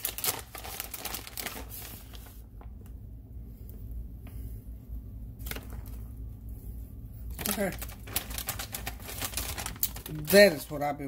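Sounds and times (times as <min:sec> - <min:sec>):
plastic packaging crinkling: 0:00.0 - 0:02.9, 0:05.4 - 0:06.1, 0:07.3 - 0:11.0
low hum: 0:00.8 - 0:10.2.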